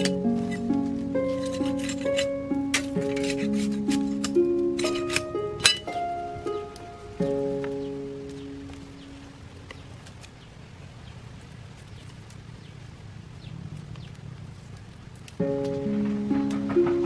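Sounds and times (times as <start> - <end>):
ukulele music: 0.0 - 9.5, 15.4 - 17.0
bamboo strips rustling and clicking: 0.0 - 13.0, 13.7 - 17.0
quiet outdoor ambience: 0.0 - 17.0.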